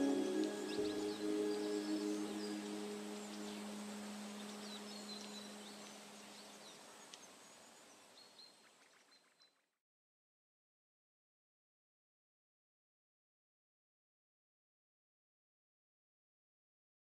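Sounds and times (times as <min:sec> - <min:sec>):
held low music tones: 0:00.0 - 0:06.8
soft hazy background music: 0:00.0 - 0:06.8.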